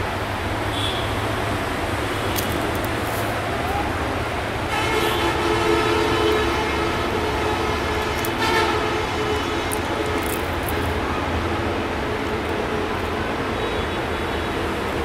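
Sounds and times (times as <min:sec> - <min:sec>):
train horn blast: 0:04.7 - 0:09.6.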